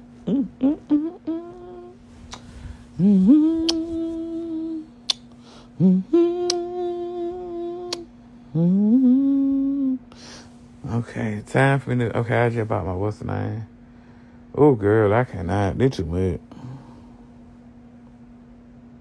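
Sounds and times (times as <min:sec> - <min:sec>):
person humming long notes: 0:00.0 - 0:05.1, 0:05.8 - 0:10.1
faint steady hum: 0:00.0 - 0:19.0.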